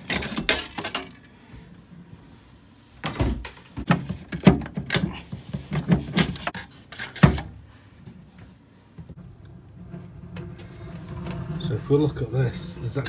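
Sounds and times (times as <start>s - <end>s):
knocks scrapes and rattles of metal pipe: 9.1s - 13.0s.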